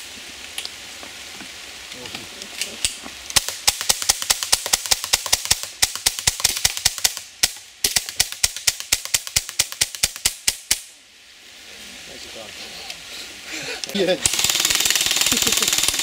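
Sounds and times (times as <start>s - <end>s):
air rifle firing rapidly: 14.2s - 16.0s.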